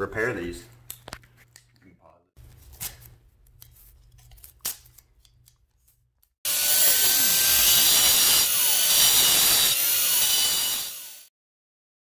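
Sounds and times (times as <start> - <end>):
angle grinder grinding: 6.5 - 11.3.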